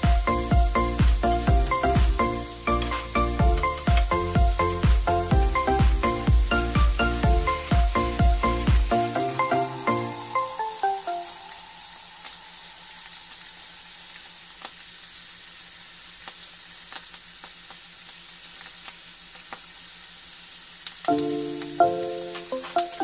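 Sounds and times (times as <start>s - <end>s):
meat frying in hot oil: 0.0s - 9.1s, 11.3s - 23.0s.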